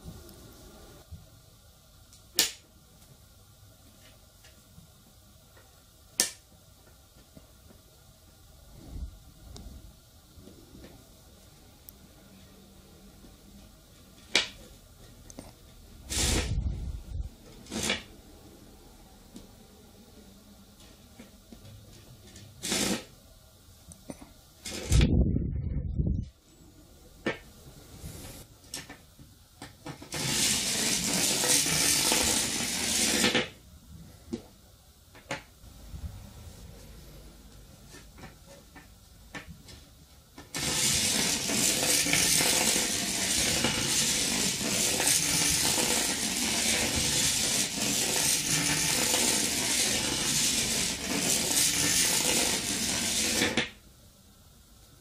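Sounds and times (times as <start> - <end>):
battery train rattling in wire coil: 16.1 - 16.5, 22.6 - 23.1, 24.6 - 25.0, 30.1 - 33.5, 40.5 - 53.6.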